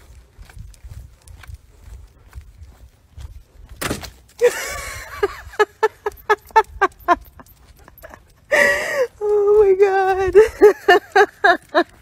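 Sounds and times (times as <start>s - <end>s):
woman laughing: 4.4s - 12.0s.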